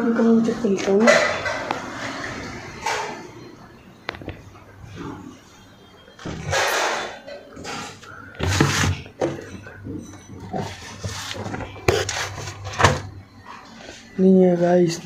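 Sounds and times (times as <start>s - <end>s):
rustling and handling noises: 6.2s - 14.3s.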